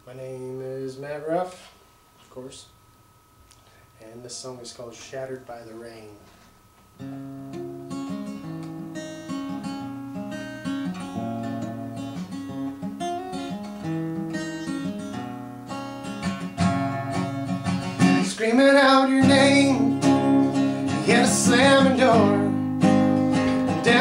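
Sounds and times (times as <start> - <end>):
acoustic guitar chords: 6.3 - 24.0.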